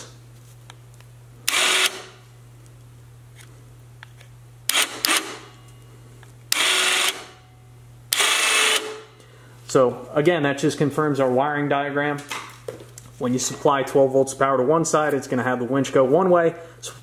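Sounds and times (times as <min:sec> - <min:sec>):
electric winch motor whirring: 0:01.5 - 0:02.1, 0:06.5 - 0:07.3, 0:08.1 - 0:09.1.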